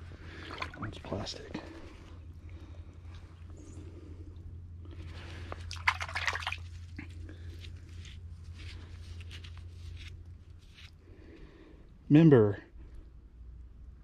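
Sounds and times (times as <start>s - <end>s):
steady low hum: 0.0s - 14.0s
muddy water splashing: 0.2s - 2.7s, 5.3s - 6.9s.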